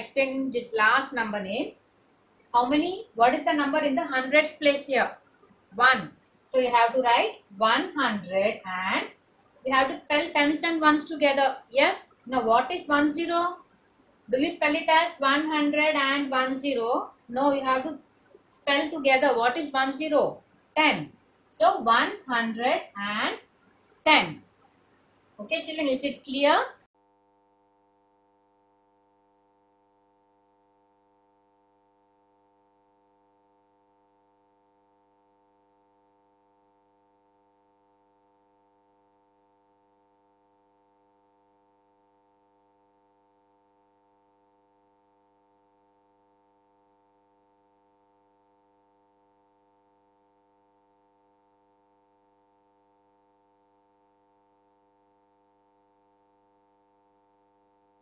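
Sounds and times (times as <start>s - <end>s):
faint steady hum: 0.0s - 26.9s.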